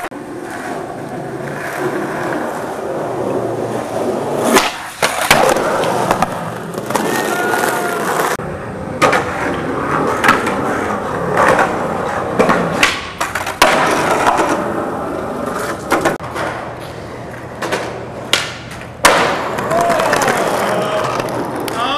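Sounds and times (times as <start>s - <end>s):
skateboard wheels rolling on concrete: 0.0s - 21.9s
skateboard tail pops: 4.4s - 7.5s, 12.4s - 14.6s, 17.6s - 20.4s
skateboard landing cracks: 4.4s - 8.4s, 11.3s - 14.6s, 17.6s - 21.8s.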